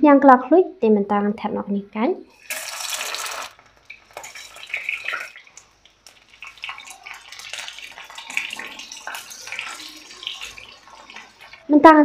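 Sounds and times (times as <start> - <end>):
tap water running and splashing: 2.4 - 11.8.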